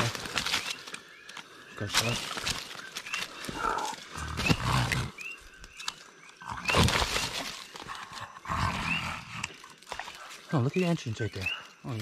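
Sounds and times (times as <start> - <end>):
frogs chirping: 0.0 - 12.0
pig groaning: 8.4 - 9.5.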